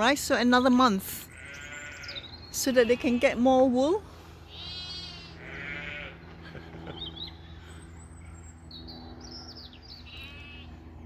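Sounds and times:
sheep bleating: 0:01.3 - 0:03.6, 0:04.5 - 0:06.3
bird chirps: 0:07.0 - 0:10.7.

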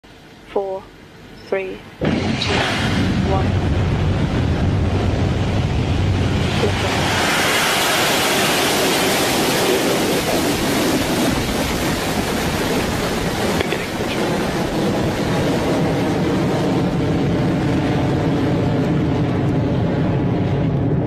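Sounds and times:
rocket engines roaring at liftoff: 0:01.4 - 0:21.0.

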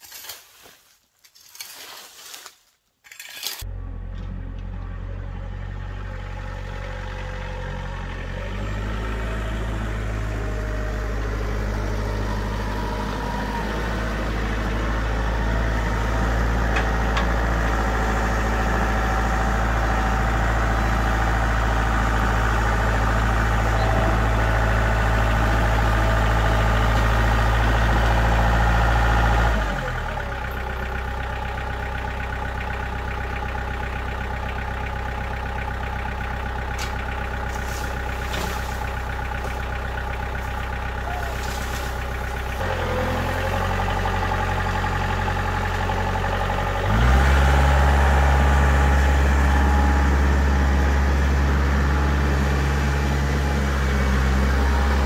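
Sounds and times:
tractor diesel engine: 0:03.4 - 0:55.0.

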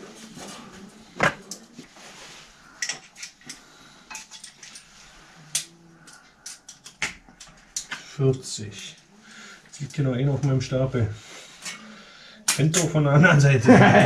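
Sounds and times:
steel balls clinking against metal: 0:02.7 - 0:07.9.

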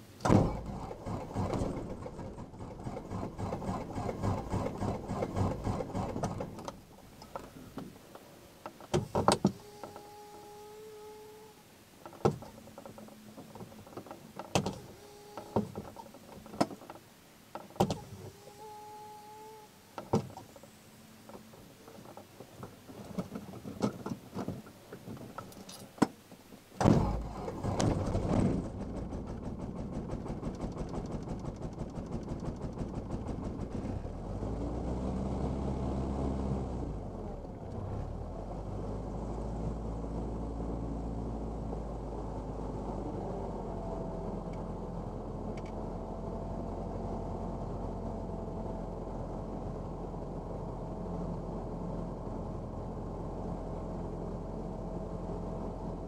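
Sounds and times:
aircraft engine running: 0:00.0 - 0:07.8
starter cranking aircraft engine: 0:00.2 - 0:07.8, 0:26.8 - 0:34.1.

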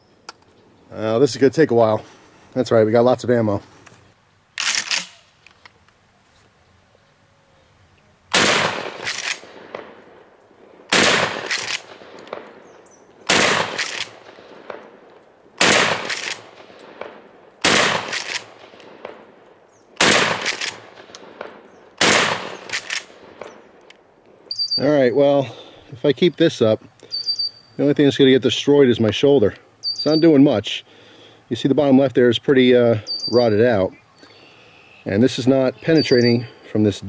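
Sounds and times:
shotgun shots: 0:08.3 - 0:10.3, 0:10.9 - 0:12.6, 0:13.2 - 0:15.0, 0:15.6 - 0:19.3, 0:20.0 - 0:23.7.

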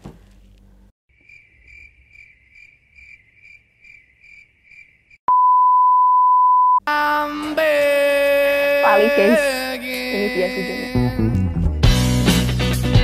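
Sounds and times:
cricket chirping: 0:01.1 - 0:05.2
loud steady beep tone: 0:05.3 - 0:06.8.

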